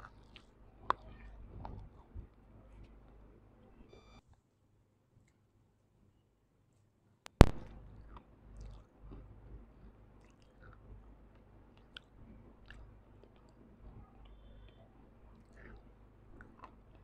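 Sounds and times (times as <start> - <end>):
person chewing crunchy food: 7.4 - 17.0.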